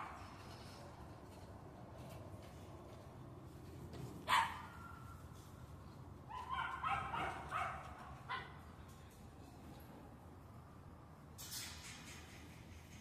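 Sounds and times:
puppy barking: 4.3s - 5.1s, 6.3s - 8.6s.

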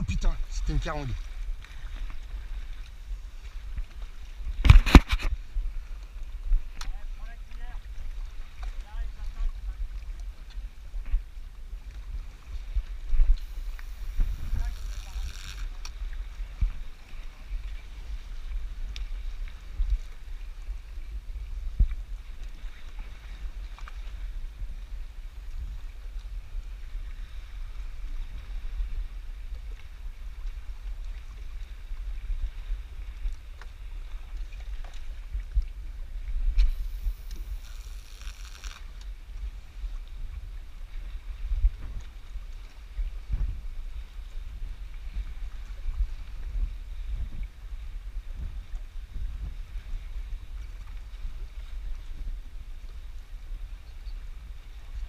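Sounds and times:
wind rumbling on microphone: 0.0s - 55.0s
brief hiss: 36.6s - 38.9s.

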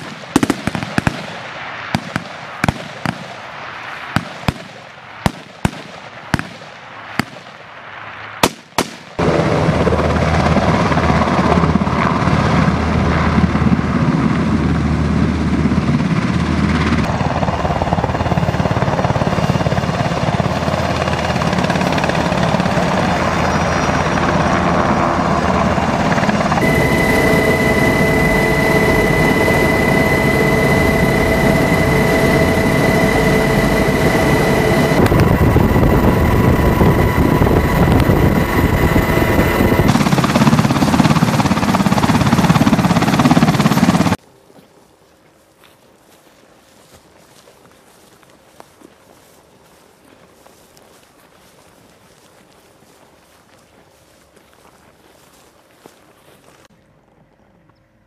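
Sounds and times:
rifle shots: 0.0s - 3.4s, 4.1s - 7.7s, 8.4s - 9.2s
helicopter engines and rotor: 9.2s - 44.2s
high steady whine: 9.2s - 44.2s.

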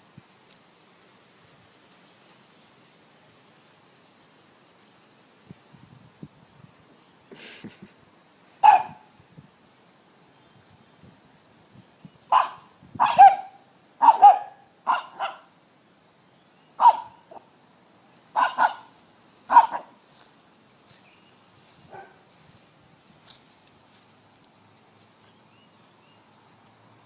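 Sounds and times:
puppy barking: 8.6s - 9.1s, 12.3s - 15.5s, 16.8s - 17.5s, 18.4s - 18.9s, 19.5s - 20.0s, 21.9s - 22.2s.

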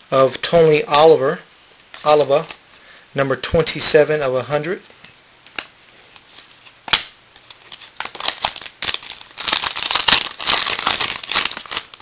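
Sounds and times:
wrapper tearing and crinkling: 6.3s - 12.0s.

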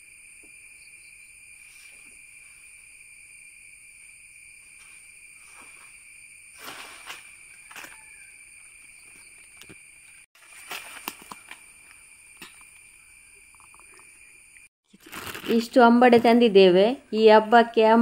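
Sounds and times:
insect chorus: 0.0s - 18.0s
leaves and branches rustling: 4.6s - 12.8s.

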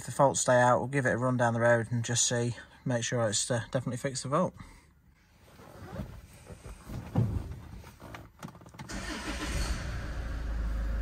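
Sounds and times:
diesel engine starting and idling: 8.8s - 11.0s.

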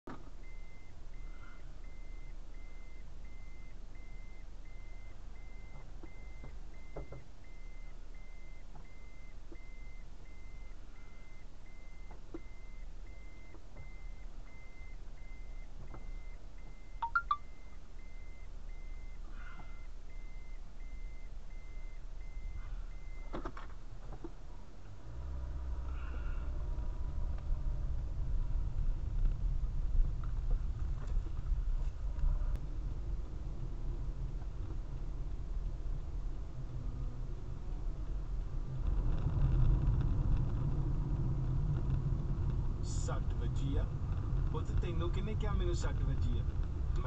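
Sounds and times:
car engine rumble: 0.0s - 47.0s
faint repeating beep: 0.4s - 23.3s
sharp double chirp: 17.0s - 17.4s.

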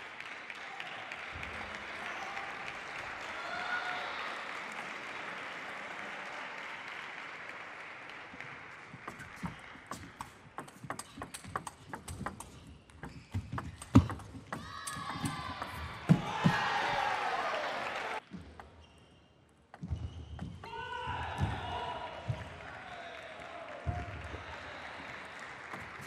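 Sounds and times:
applause: 0.0s - 10.4s, 16.6s - 18.2s, 21.9s - 26.0s
table tennis ball clicking: 9.9s - 15.7s.

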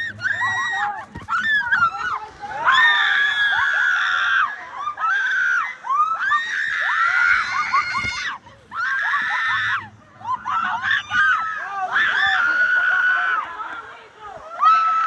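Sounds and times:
people screaming: 0.0s - 15.0s.

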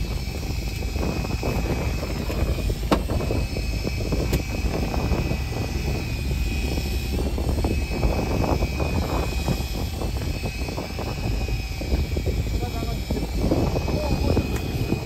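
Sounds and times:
boat engine rumbling: 0.0s - 15.0s
wind on microphone: 0.0s - 15.0s
sharp clicks: 4.2s - 5.0s, 14.4s - 15.0s.

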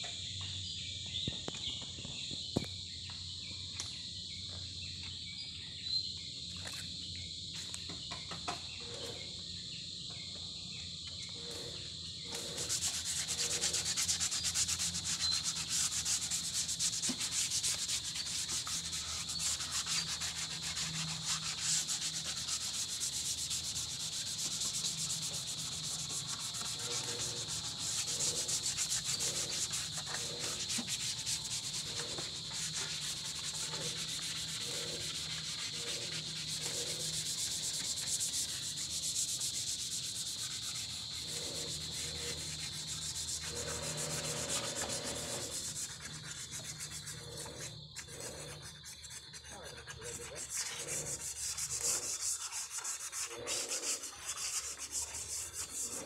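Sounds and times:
sandpaper rubbing on metal: 11.4s - 56.0s.

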